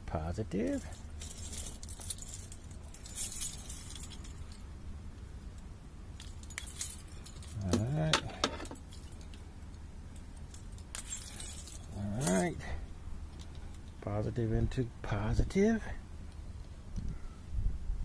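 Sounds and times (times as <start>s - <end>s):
steady low hum: 0.0s - 18.0s
keys jangling: 0.7s - 4.7s, 6.2s - 12.6s.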